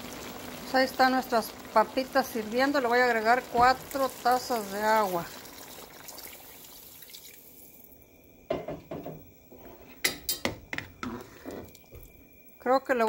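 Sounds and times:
water pouring into a pot: 0:00.0 - 0:08.0, 0:11.0 - 0:12.6
clinks and knocks against pot: 0:09.9 - 0:12.0.

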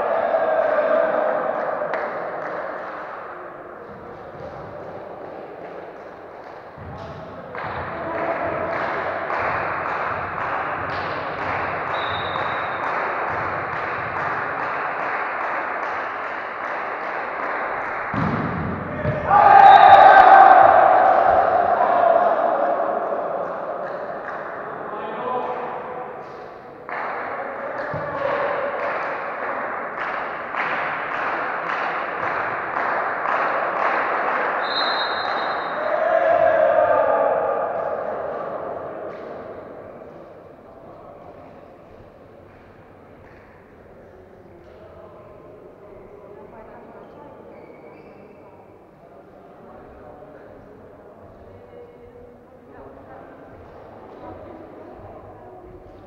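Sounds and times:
echoing sports hall noise: 0:00.0 - 0:56.0
rhythmic clapping: 0:00.6 - 0:19.2, 0:23.0 - 0:36.0, 0:41.4 - 0:44.9
referee's whistle: 0:11.9 - 0:12.8, 0:19.5 - 0:20.2, 0:34.6 - 0:35.8
referee's whistle blast: 0:34.6 - 0:35.8.

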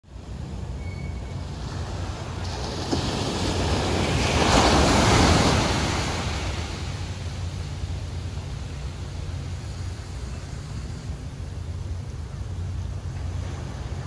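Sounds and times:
small waves breaking on sand: 0:01.4 - 0:11.6, 0:12.2 - 0:14.0.

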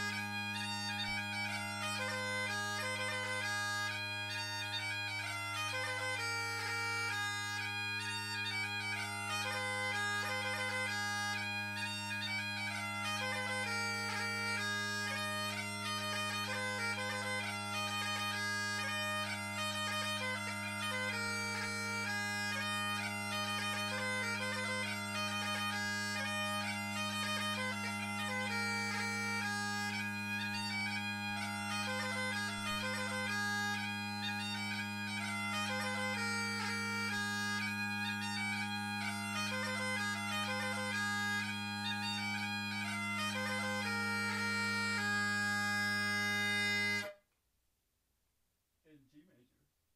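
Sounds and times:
bagpipes playing: 0:00.0 - 0:47.2.

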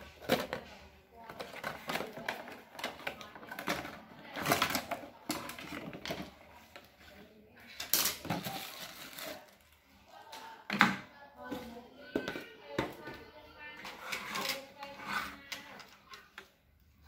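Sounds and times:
plastic parts clicking and knocking: 0:00.0 - 0:08.9.

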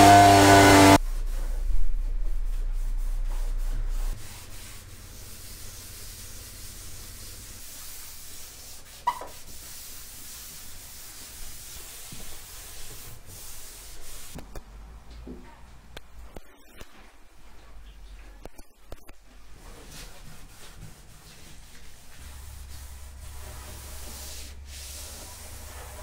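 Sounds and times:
short squeak: 0:09.0 - 0:09.3
cloth rag rubbing on wood: 0:19.5 - 0:26.0.

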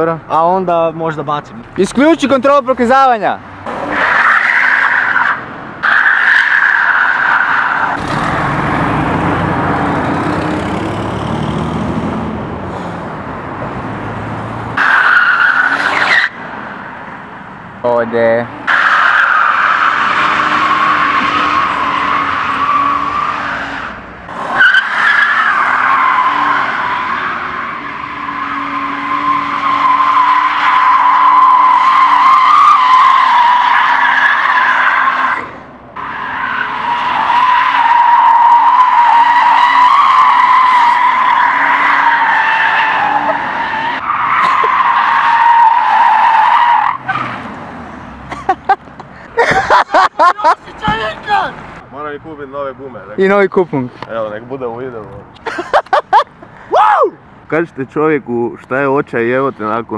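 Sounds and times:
tyres squealing: 0:14.8 - 0:16.4, 0:18.6 - 0:48.8.

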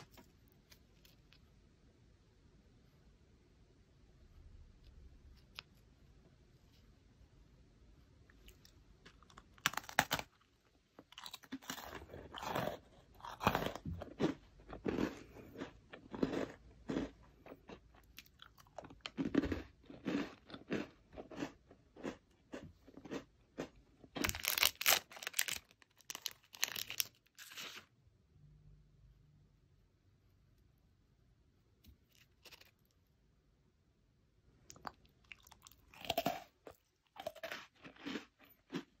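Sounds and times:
biscuit crunching and chewing: 0:08.2 - 0:27.9, 0:31.9 - 0:33.0, 0:34.6 - 0:39.0.

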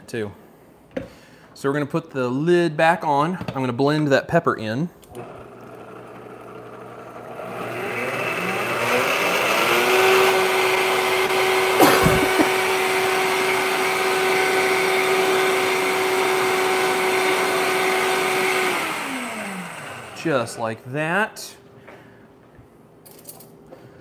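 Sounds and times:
blender motor running: 0:05.2 - 0:20.6.

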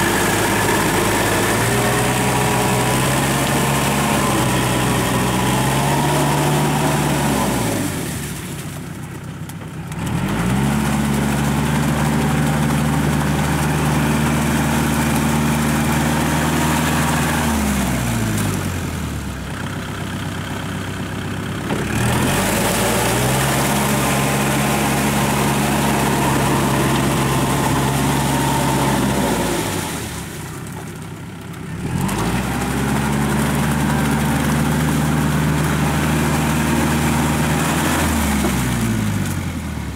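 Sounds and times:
rotary tiller churning water: 0:00.0 - 0:39.9
tractor diesel engine: 0:00.0 - 0:39.9.

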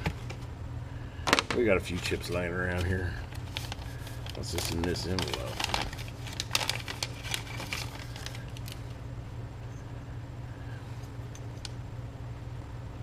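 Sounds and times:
steady low hum: 0:00.0 - 0:13.0
clicks and rustles of handling: 0:01.3 - 0:09.0, 0:11.0 - 0:11.8.

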